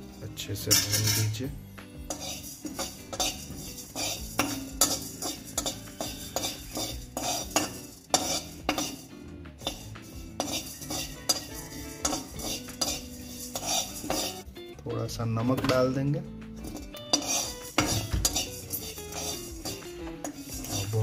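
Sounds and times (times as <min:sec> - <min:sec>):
metal spoon scraping metal pan: 0:00.0 - 0:14.5, 0:16.6 - 0:21.0.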